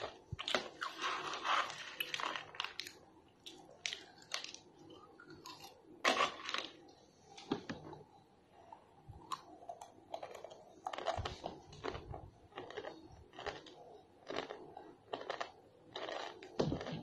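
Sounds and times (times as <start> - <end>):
child crunching dry noodle snack: 0.0 - 4.7, 10.2 - 17.0.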